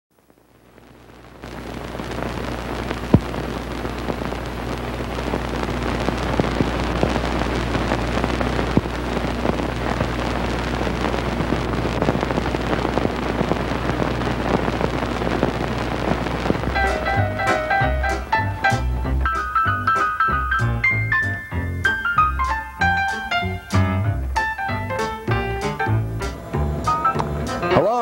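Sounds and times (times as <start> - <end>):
film soundtrack crackle and hiss: 0.1 - 28.0
steady low hum: 0.2 - 21.0, 21.6 - 27.7
sharp pops: 1.4 - 27.9.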